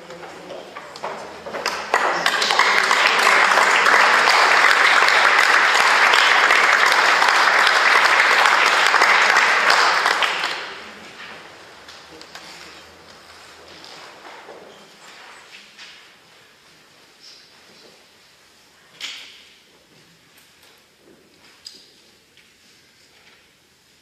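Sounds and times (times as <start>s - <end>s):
audience applause: 1.0s - 13.6s.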